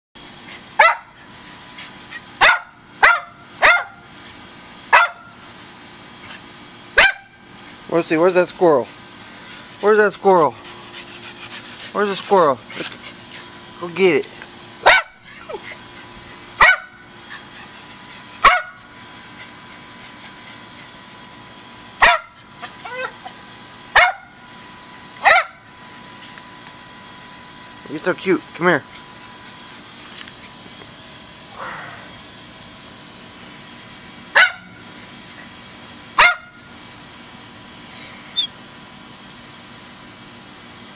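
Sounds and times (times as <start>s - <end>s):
dog barking sharply: 0.8s - 1.1s, 2.4s - 4.0s, 4.9s - 5.2s, 7.0s - 7.3s, 14.8s - 15.2s, 16.6s - 17.0s, 18.4s - 18.8s, 22.0s - 22.3s, 34.4s - 34.6s.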